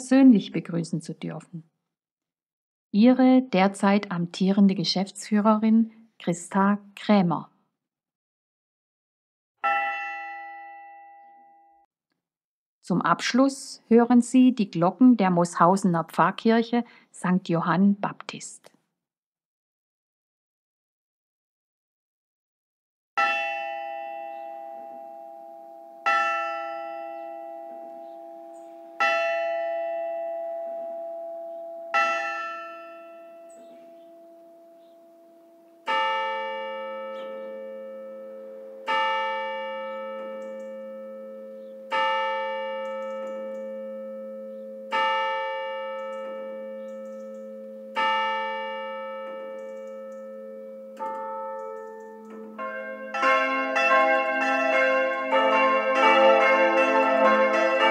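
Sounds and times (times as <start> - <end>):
church bell tolling: 9.6 - 11.9, 23.2 - 57.9
deeper bell tolling: 23.2 - 57.9.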